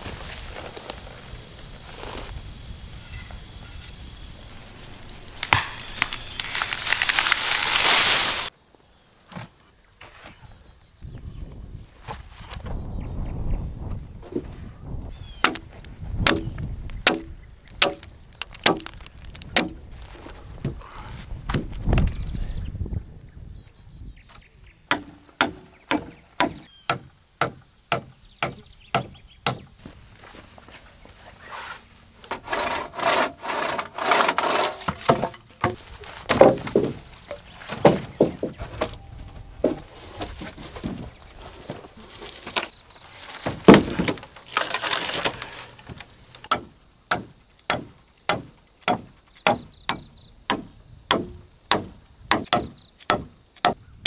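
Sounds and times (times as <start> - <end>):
scraping rasping on timber: 31.5 - 35.8.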